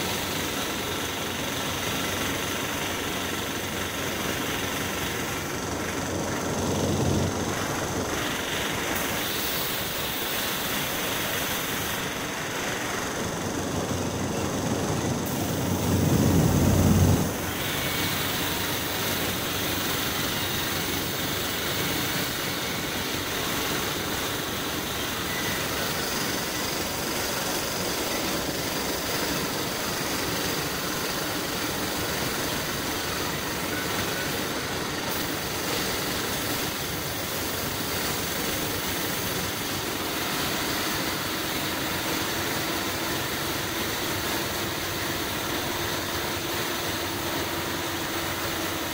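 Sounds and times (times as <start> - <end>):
air compressor motor running: 0.0 - 48.9
spray gun hissing: 0.0 - 48.9
low rumble: 15.3 - 17.4.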